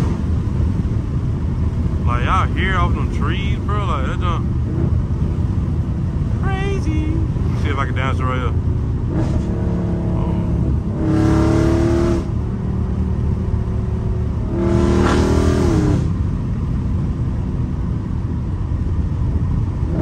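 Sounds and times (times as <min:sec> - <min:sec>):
car exhaust revving from cabin: 0:09.0 - 0:13.1, 0:14.2 - 0:16.2.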